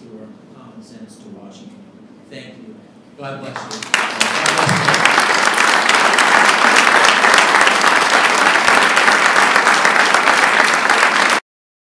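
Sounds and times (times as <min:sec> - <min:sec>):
audience applauding: 0:03.5 - 0:11.4.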